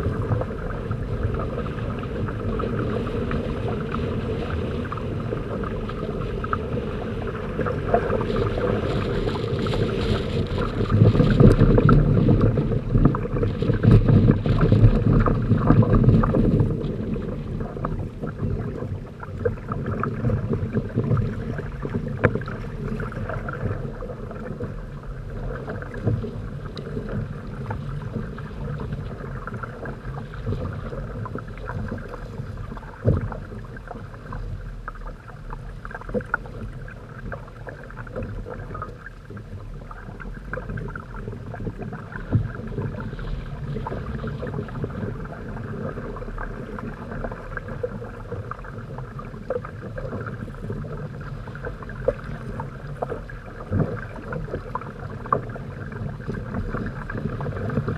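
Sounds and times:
water rushing along hulls: 0:00.0 - 0:57.9.

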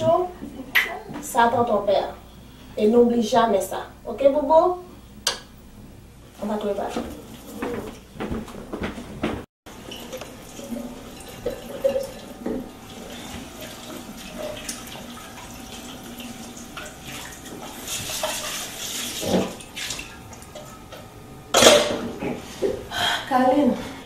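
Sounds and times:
tap water running into steel sink: 0:09.7 - 0:21.1
dishes knocking: 0:21.5 - 0:22.8.

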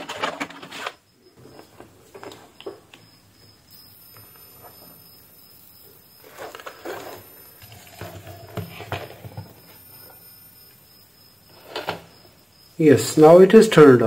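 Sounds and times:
plastic knocking and scraping: 0:00.0 - 0:02.9, 0:06.3 - 0:09.9.

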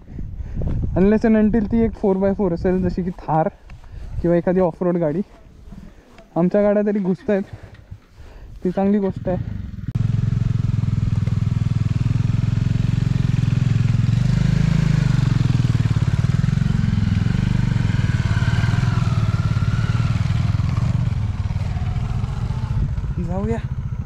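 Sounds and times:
motorcycle engine revving: 0:08.8 - 0:24.0.

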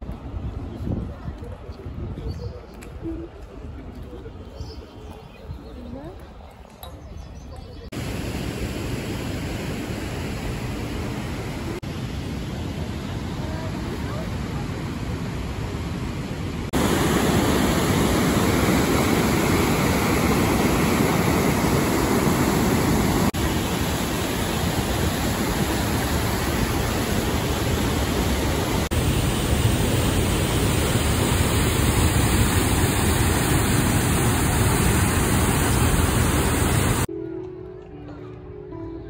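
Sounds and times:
river rushing over a weir: 0:08.0 - 0:37.1.

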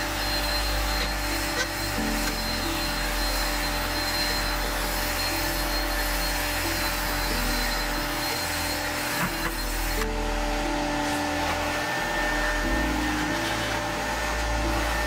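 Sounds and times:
drill motor whine: 0:00.0 - 0:15.0.

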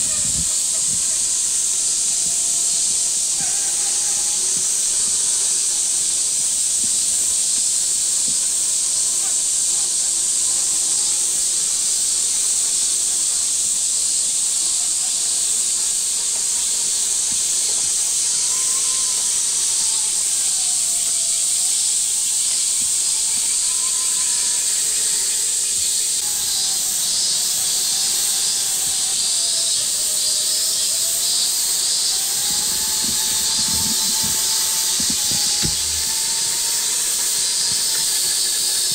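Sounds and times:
electric motor whine: 0:00.0 - 0:01.3, 0:23.7 - 0:38.9
pulsing insect call: 0:00.0 - 0:09.6, 0:15.9 - 0:38.9
cicada chorus hissing: 0:00.0 - 0:38.9
low knocks: 0:32.3 - 0:36.9.

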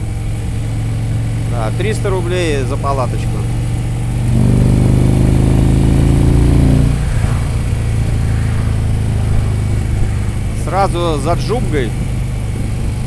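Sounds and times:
motorcycle engine running: 0:00.0 - 0:13.0
wind rushing: 0:04.3 - 0:13.0.

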